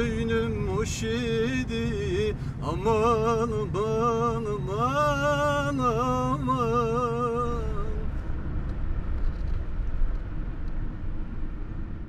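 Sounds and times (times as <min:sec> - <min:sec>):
man singing unaccompanied: 0:00.0 - 0:08.1
car driving in traffic: 0:00.0 - 0:12.0.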